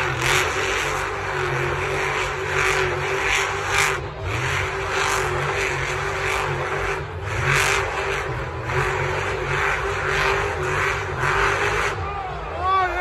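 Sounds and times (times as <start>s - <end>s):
truck engine revving: 0.0s - 13.0s.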